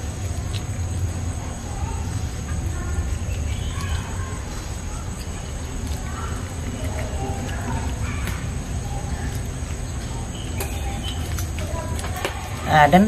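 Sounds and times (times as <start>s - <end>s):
faint bird chirps: 3.0s - 9.4s, 10.0s - 11.5s.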